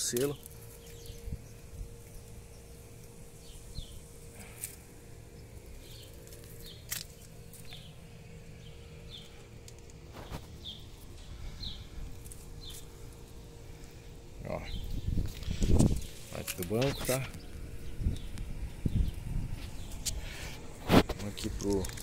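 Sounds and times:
steady low rumble: 0.0 - 22.0
small bird chirping: 0.2 - 4.6.

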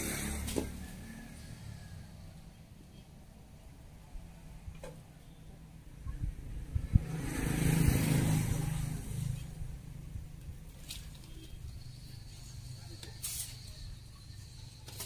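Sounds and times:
vehicle passing by: 0.0 - 2.6, 6.2 - 11.2.

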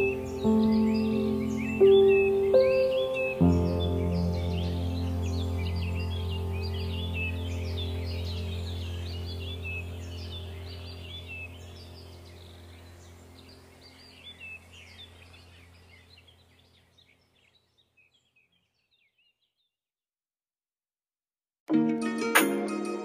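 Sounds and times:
birds chirping: 0.0 - 19.8
steady low hum: 5.2 - 16.6.

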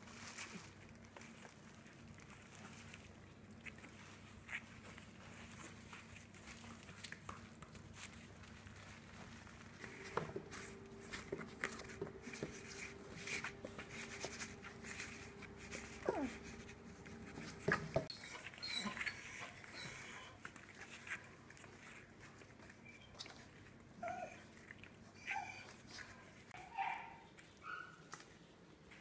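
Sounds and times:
paws and toys scuffling: 0.0 - 29.0
puppy whining: 7.7 - 28.3
high puppy squeaks: 11.7 - 22.0, 22.6 - 24.5, 25.2 - 28.1.

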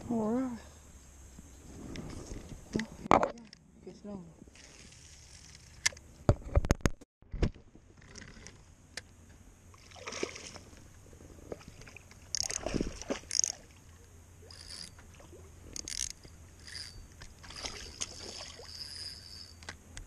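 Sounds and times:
fishing gear knocks and rustles: 4.8 - 8.7, 10.6 - 13.6
water sloshing against hull: 9.7 - 19.6.

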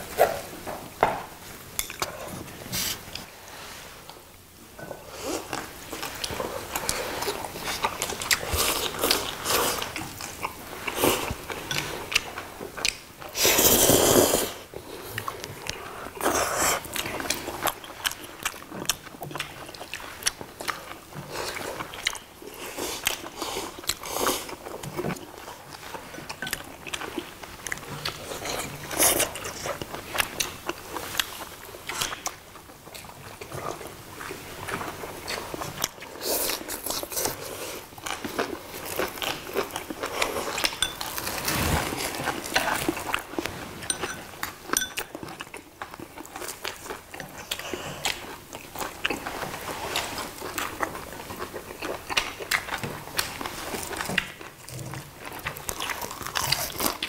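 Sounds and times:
people chewing and crunching: 4.8 - 57.0.

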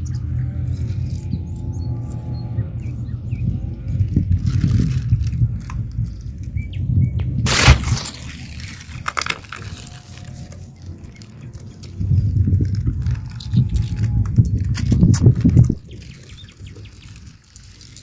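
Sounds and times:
scratchy handling noise: 3.8 - 6.5, 7.5 - 18.0
pebbles clicking and crunching: 3.8 - 6.6, 7.5 - 18.0
loud rustle: 7.5 - 18.0.

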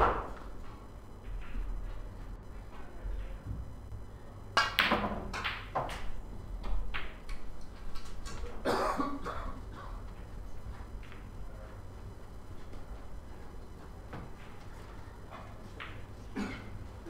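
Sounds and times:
balls rolling on table: 4.6 - 8.4
snooker balls clicking: 4.6 - 8.6, 9.7 - 11.4, 13.8 - 16.4
person coughing: 8.6 - 10.0, 16.3 - 16.8.

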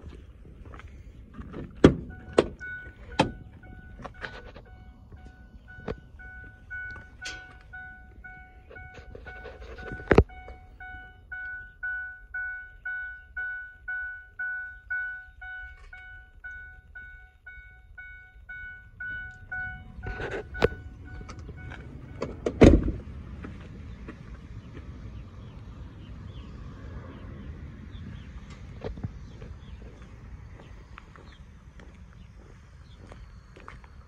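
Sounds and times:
sharp thunks: 1.4 - 4.3, 20.0 - 23.1
car warning chime dinging: 1.8 - 23.0.

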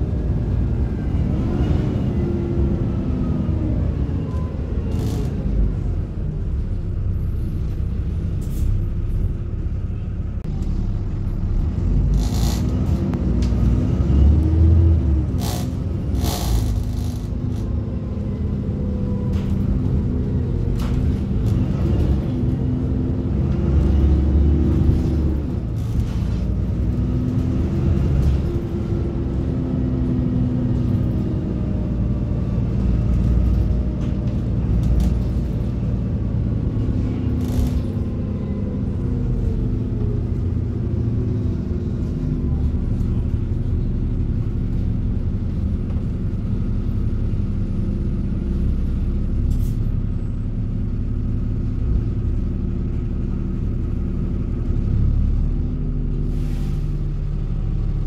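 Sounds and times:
bus engine drone: 0.0 - 58.0.

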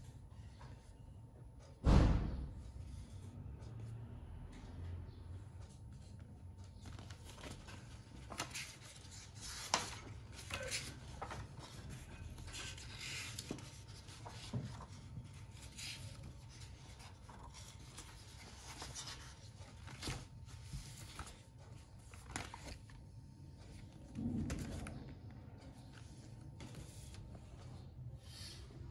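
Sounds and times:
paper pages turning: 6.0 - 27.9.

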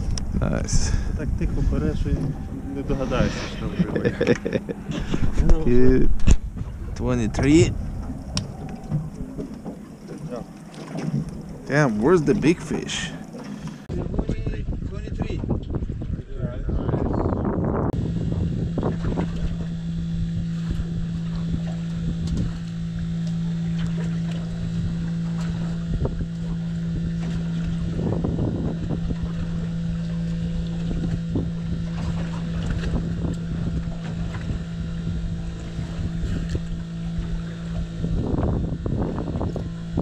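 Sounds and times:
boat engine idling: 0.0 - 13.9, 17.9 - 40.0
wind buffeting microphone: 0.0 - 40.0.

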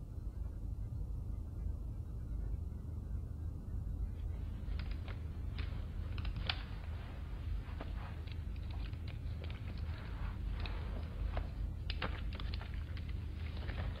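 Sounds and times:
low room hum: 0.0 - 14.0
glasses and pencil handling clicks: 4.8 - 6.8.

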